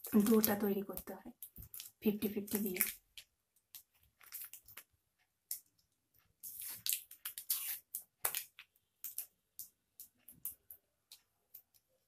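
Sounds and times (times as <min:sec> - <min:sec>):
packaging rustling and crackling: 0:00.0 - 0:04.9.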